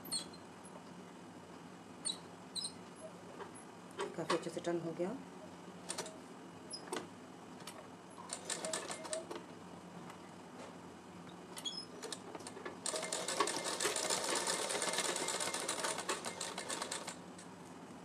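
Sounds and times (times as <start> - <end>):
sewing machine stitching fabric: 8.3 - 9.3, 12.0 - 17.2.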